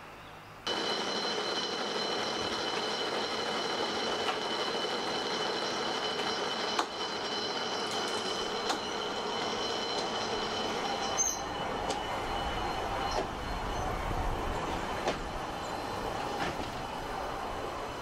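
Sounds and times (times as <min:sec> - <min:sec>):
funicular car clicking on rails: 0:00.7 - 0:18.0
level-crossing alarm ringing: 0:00.7 - 0:18.0.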